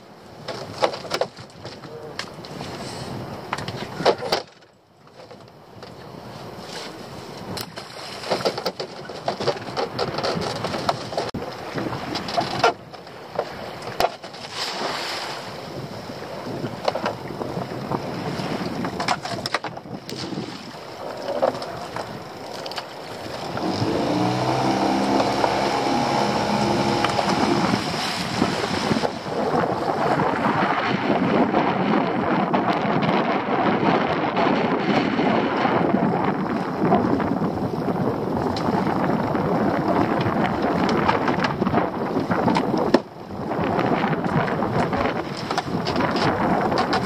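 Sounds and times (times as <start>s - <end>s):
wind on microphone: 0.0s - 4.6s, 5.4s - 47.0s
sea waves: 0.0s - 32.6s
lobster pot and rope clattering: 0.5s - 2.5s, 7.5s - 14.5s, 18.8s - 20.3s, 44.3s - 47.0s
boat engine running: 20.7s - 47.0s.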